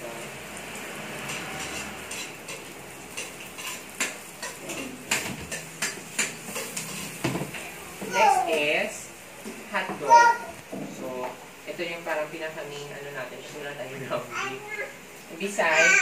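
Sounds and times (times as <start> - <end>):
food sizzling hiss: 0.0 - 16.0
spatula scraping and clinking wok: 1.0 - 7.2.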